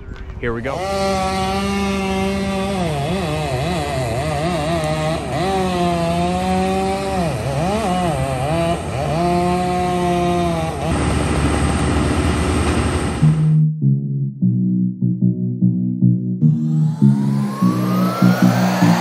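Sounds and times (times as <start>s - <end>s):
wood chipper engine grinding: 0.7s - 13.2s
electronic music: 15.3s - 19.0s.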